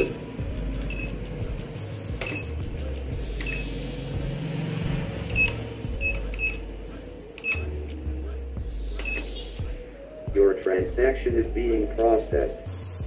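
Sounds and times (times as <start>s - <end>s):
keypad beeps: 0.9s - 1.2s, 2.2s - 2.5s, 3.4s - 3.7s, 5.3s - 6.6s, 7.4s - 7.7s, 9.0s - 9.3s.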